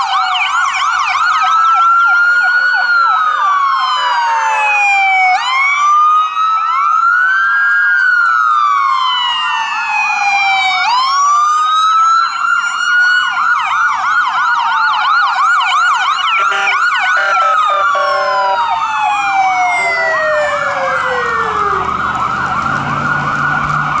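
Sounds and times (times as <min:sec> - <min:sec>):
sirens wailing and yelping: 0:00.0 - 0:24.0
vehicle engine rumbling past: 0:20.3 - 0:24.0.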